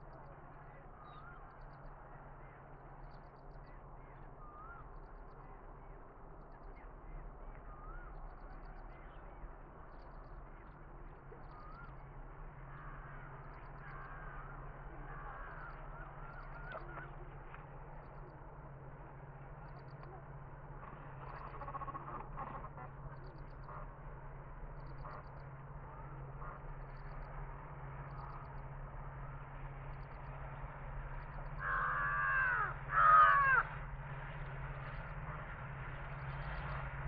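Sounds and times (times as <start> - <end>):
distant diesel locomotive hum: 0.0 - 37.0
crows cawing: 21.3 - 22.7, 31.6 - 33.8.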